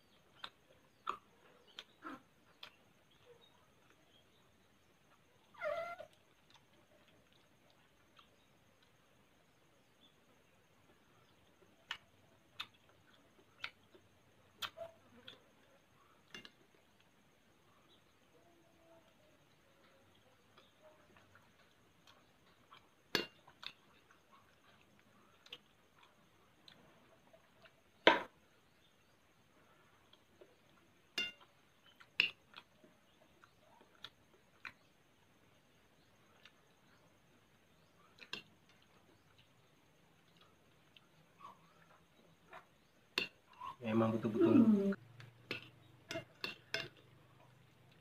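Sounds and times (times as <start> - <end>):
quiet chewing: 0.0 - 48.0
metal spoon clinking glass bowl: 45.5 - 47.0.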